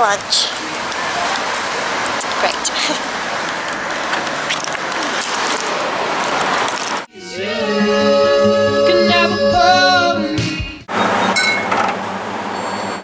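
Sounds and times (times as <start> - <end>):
person singing over music: 7.1 - 10.8.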